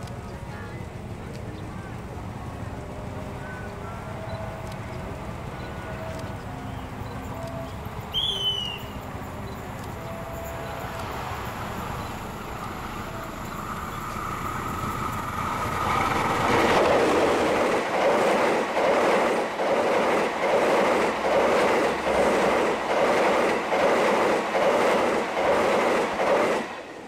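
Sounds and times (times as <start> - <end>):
diesel locomotive passing: 0.0 - 27.0
train coaches rushing past: 0.0 - 27.0.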